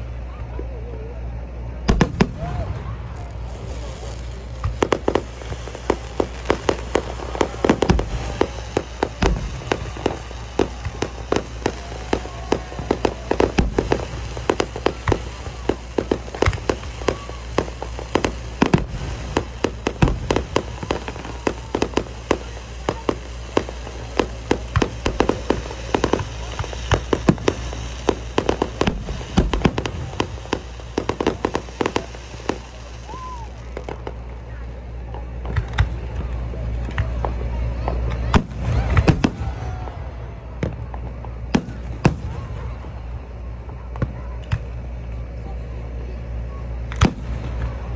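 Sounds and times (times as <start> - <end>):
fireworks bangs and crackling: 0.0 - 47.9.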